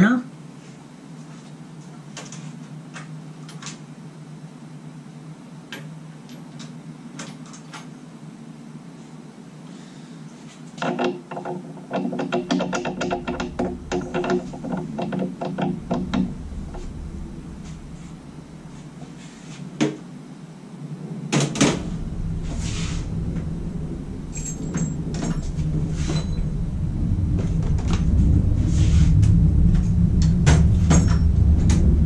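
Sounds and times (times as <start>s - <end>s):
low hum: 11.4s - 32.0s.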